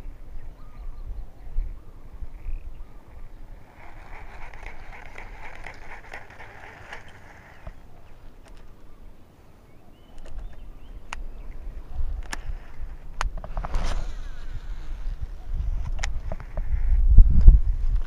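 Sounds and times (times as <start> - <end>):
low wind rumble: 0.0 - 18.0
fishing reel whirring and ticking: 3.6 - 7.8.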